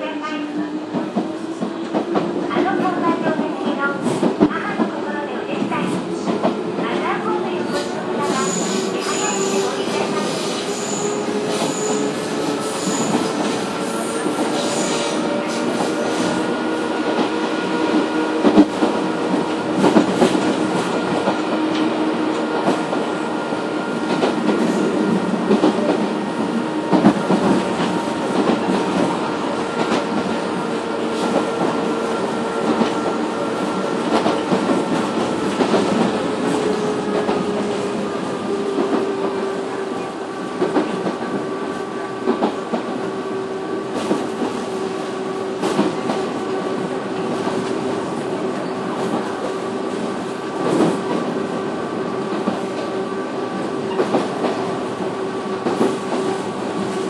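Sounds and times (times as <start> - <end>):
train wheel and rail noise: 0.0 - 57.0
rail joint clacks: 52.0 - 57.0.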